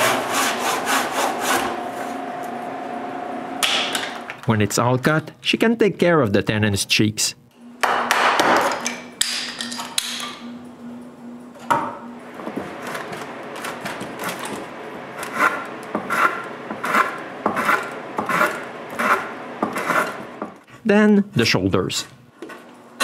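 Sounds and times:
hand plane rasping strokes: 15.2s - 20.2s.

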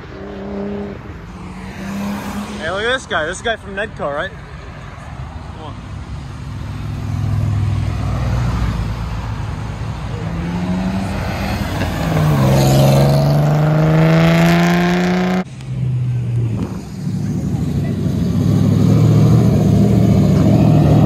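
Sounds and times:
car engines accelerating past: 0.0s - 2.9s, 10.0s - 21.0s
car engine pulling hard close by: 10.1s - 21.0s.

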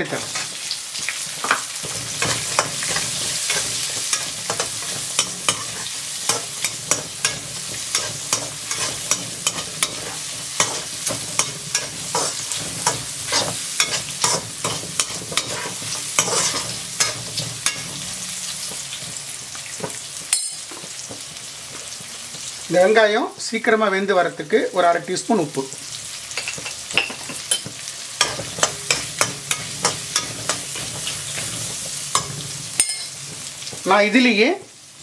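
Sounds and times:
shallots sizzling in oil: 0.0s - 35.0s
metal ladle scraping a pan: 1.4s - 21.2s, 26.3s - 33.9s.

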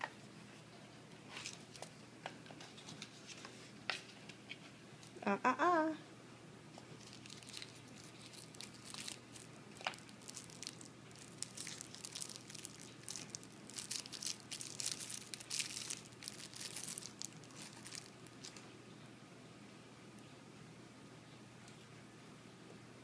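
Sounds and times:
plastic wrapper crinkling and tearing: 6.8s - 18.6s.

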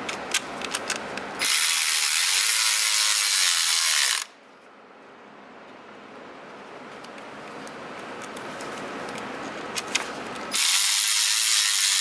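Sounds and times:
ratchet clicks: 0.1s - 4.3s, 9.8s - 12.0s
electric ratchet spinning: 1.4s - 4.3s, 10.5s - 12.0s.

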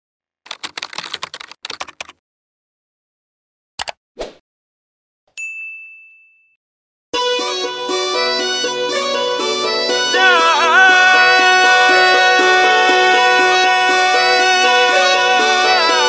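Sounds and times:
short swish: 4.2s - 4.4s
bright ding: 5.4s - 6.6s
music: 7.2s - 16.0s.

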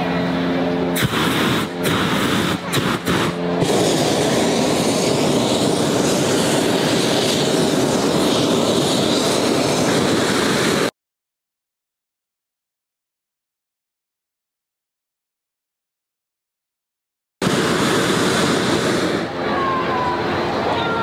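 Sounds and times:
propane burner rushing blast: 0.9s - 10.9s, 17.4s - 21.0s.

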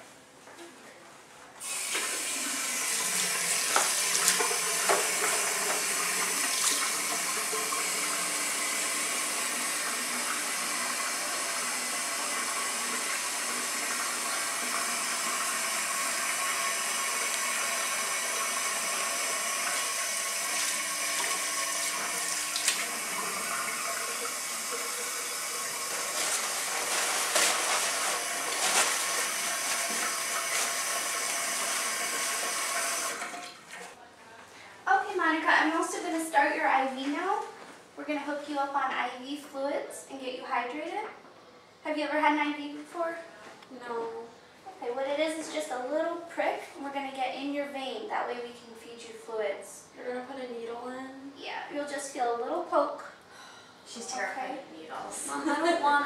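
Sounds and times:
faucet water running: 1.6s - 33.8s
water splashing: 1.8s - 8.2s, 16.1s - 33.8s.

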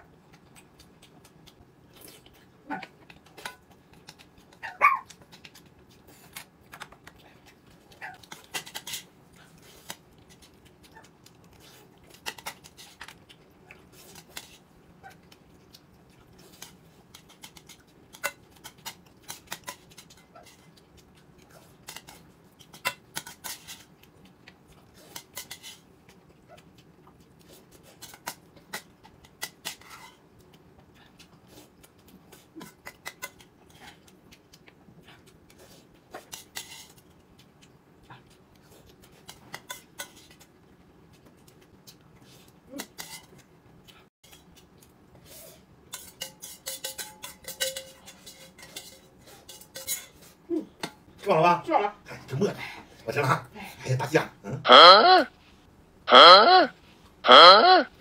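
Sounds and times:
chopsticks and tableware clinking: 45.9s - 51.0s.

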